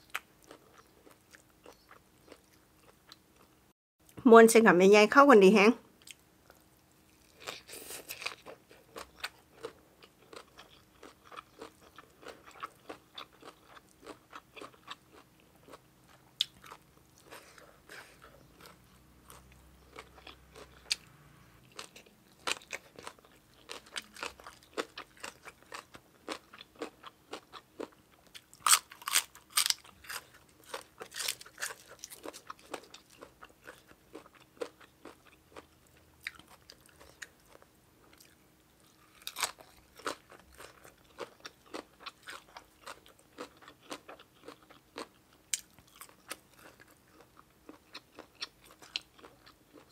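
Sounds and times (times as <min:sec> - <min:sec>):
chewing and crunching food: 0:00.0 - 0:03.6, 0:06.0 - 0:49.9.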